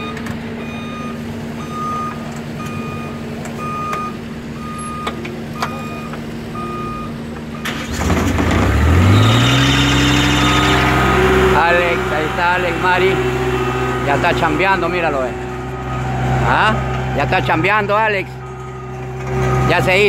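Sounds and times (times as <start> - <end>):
reversing alarm beeps: 0.0 - 7.7, 15.0 - 20.0
road roller engine: 0.0 - 20.0.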